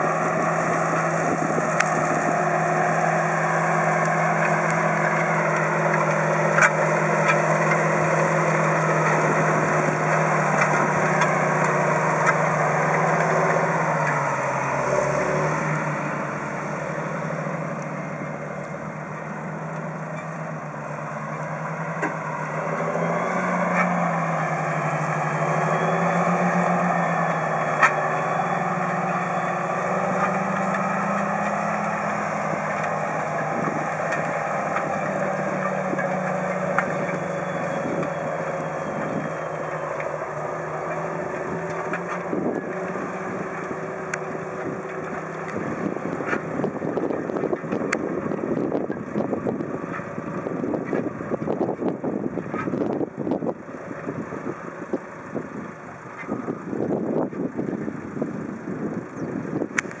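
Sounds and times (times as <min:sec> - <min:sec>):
tractor diesel engine running: 0:00.0 - 1:00.0
wind buffeting microphone: 0:00.1 - 0:03.8, 0:23.0 - 1:00.0.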